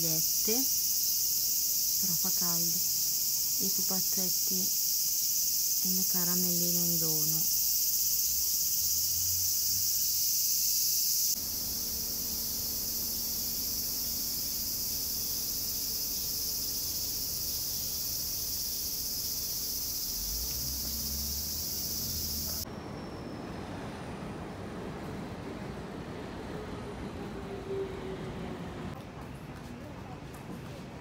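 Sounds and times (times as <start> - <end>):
cicada chorus shrilling: 0.0 - 23.5
city street noise: 19.8 - 31.0.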